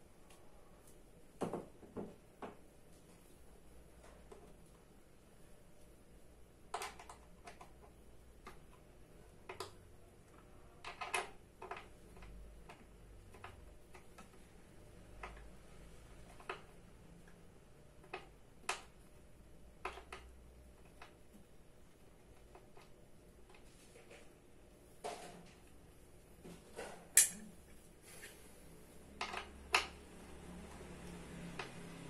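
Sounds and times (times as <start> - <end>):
clicks and taps of metal and plastic: 6.7 - 15.6, 19.7 - 21.4.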